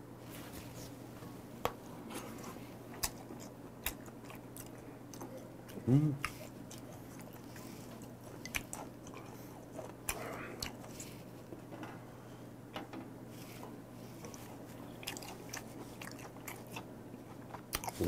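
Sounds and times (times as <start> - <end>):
wet mouth chewing: 2.4 - 11.1, 14.1 - 18.0.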